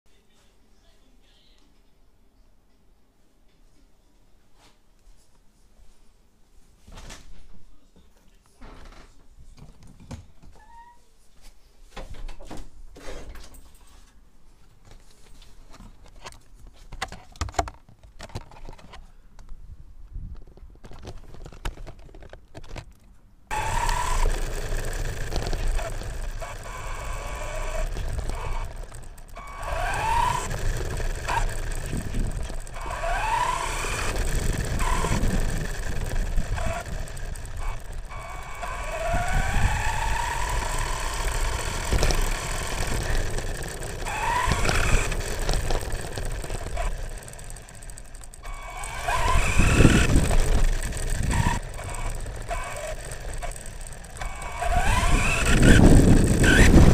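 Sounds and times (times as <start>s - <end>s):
electric motor whining: 23.5s - 56.9s
tyres rumbling on rough ground: 23.5s - 56.9s.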